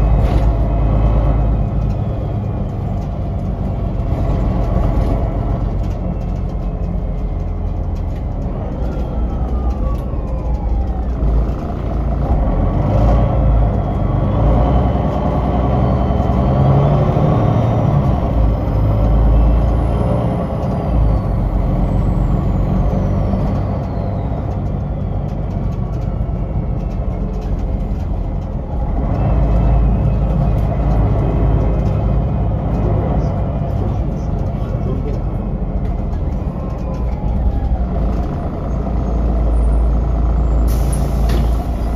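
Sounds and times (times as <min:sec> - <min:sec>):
bus diesel engine rumble: 0:00.0 - 0:41.9.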